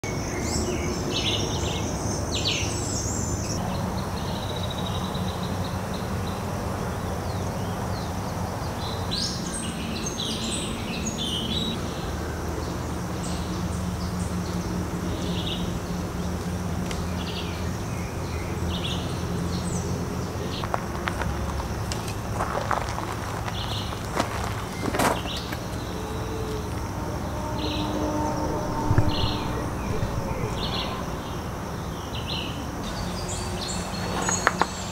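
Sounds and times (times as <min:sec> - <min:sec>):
birds chirping: 0:17.0 - 0:34.9
steady low rumble: 0:17.9 - 0:33.2
constant thin high tone: 0:25.6 - 0:33.7.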